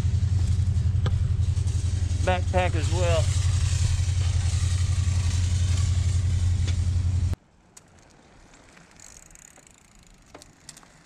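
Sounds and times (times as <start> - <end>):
vehicle engine idling: 0.0 - 7.4.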